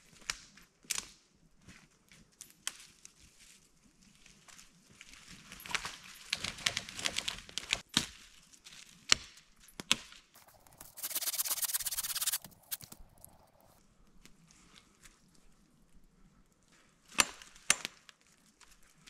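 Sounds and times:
steady rasp of branches: 10.5s - 12.9s.

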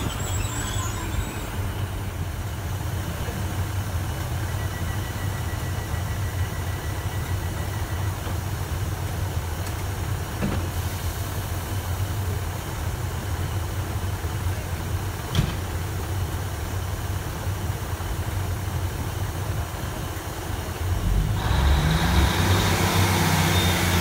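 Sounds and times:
sliding train doors closing: 0.0s - 4.4s, 9.6s - 11.3s, 15.2s - 16.0s
high steady tone: 0.0s - 8.8s
train engine idling: 0.0s - 24.0s.

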